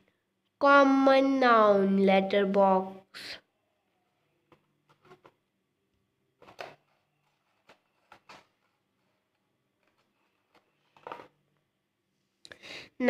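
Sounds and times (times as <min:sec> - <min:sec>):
paper rustling and tapping: 0:04.5 - 0:05.4, 0:06.4 - 0:11.4.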